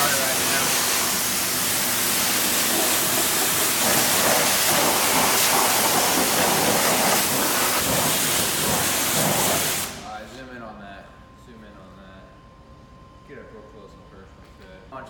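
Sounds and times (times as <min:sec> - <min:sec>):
pressure washer spraying water: 0:00.0 - 0:10.1.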